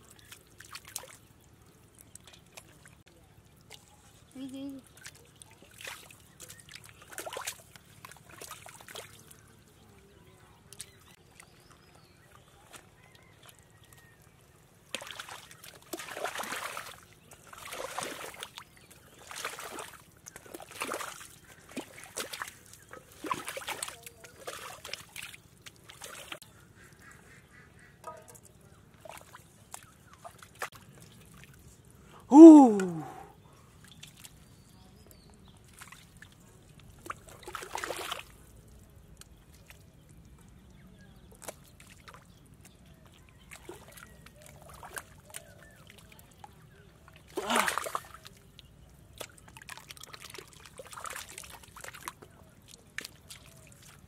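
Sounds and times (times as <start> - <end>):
muddy water splashing: 0.0 - 54.0.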